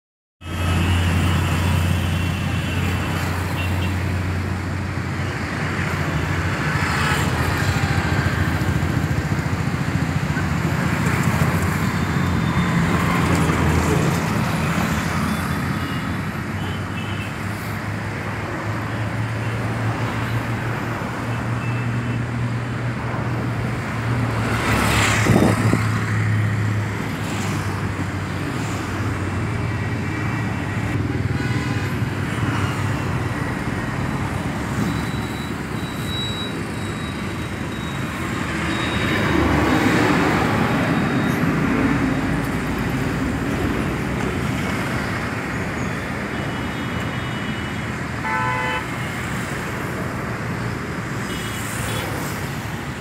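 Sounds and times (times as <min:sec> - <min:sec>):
traffic passing: 0:00.4 - 0:53.0.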